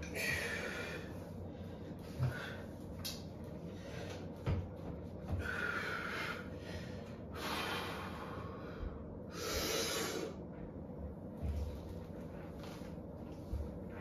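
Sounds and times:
man breathing hard: 0.0s - 3.0s, 5.2s - 10.5s.

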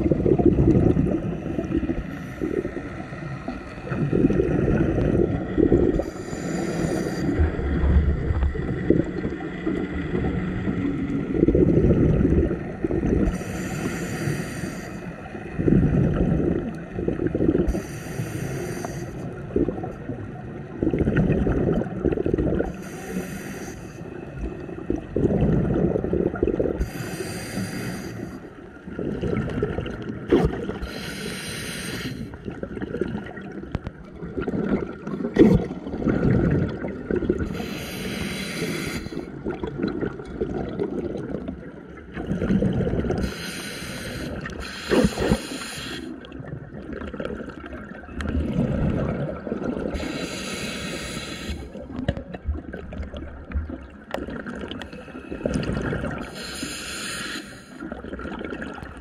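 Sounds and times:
exhaled air bubbling: 0.0s - 59.0s
regulator inhalation hiss: 6.0s - 7.4s, 13.3s - 15.0s, 17.7s - 19.2s, 22.8s - 24.0s, 26.8s - 28.4s, 30.8s - 32.3s, 37.5s - 39.2s, 43.2s - 46.1s, 50.0s - 51.7s, 56.3s - 57.8s.

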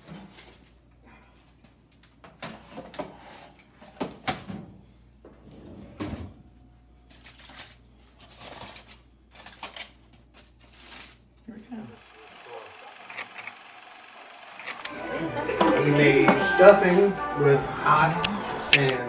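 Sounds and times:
aluminium foil crinkling: 7.1s - 11.3s.

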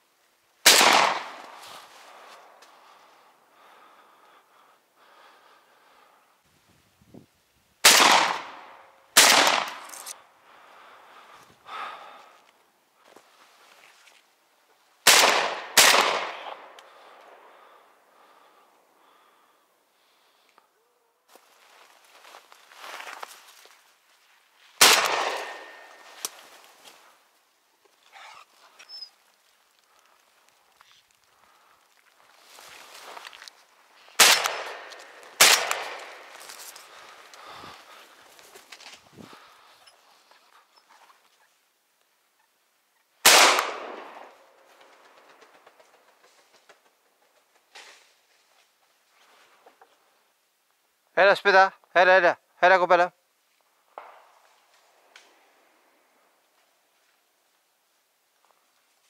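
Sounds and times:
shotgun shots echoing: 0.6s - 1.6s, 7.8s - 10.1s, 15.0s - 16.8s, 24.8s - 26.1s, 34.2s - 36.5s, 43.2s - 44.4s.

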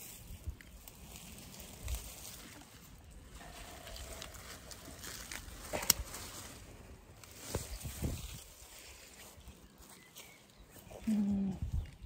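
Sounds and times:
leaves rustling: 0.0s - 12.0s
light clicks of picking flowers: 5.2s - 6.2s.

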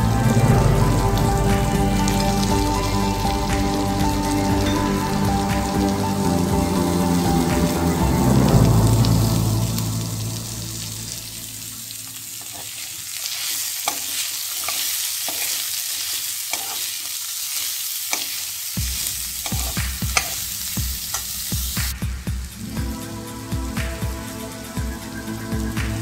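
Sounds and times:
vegetables sizzling in oil: 0.0s - 26.0s
steel spoon scraping a pan: 12.3s - 18.5s, 19.4s - 21.4s.

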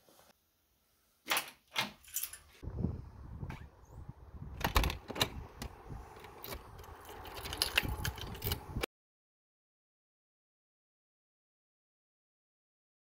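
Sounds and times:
keys jangling: 2.0s - 2.5s, 6.2s - 8.7s
door handle and lock clicking: 4.5s - 8.7s.

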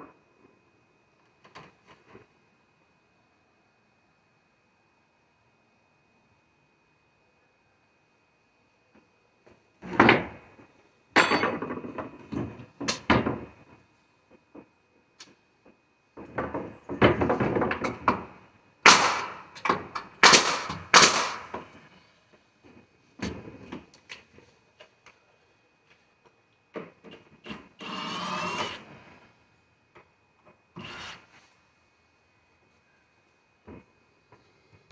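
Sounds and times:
pneumatic nail gun shots: 18.8s - 21.6s, 27.8s - 28.9s
knocks and rasping of wood: 26.8s - 29.0s, 30.8s - 31.4s
long scrape: 27.8s - 29.1s, 30.8s - 31.6s.

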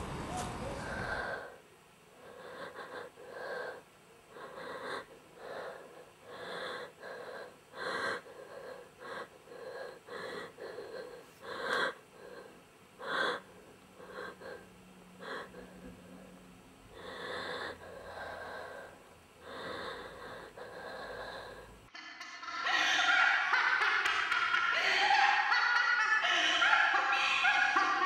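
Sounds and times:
person gasping for breath: 0.7s - 1.6s.

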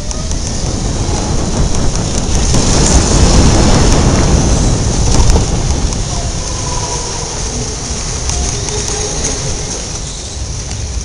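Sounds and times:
go-kart engine rumble: 0.0s - 11.0s
wind on microphone: 0.0s - 11.0s.

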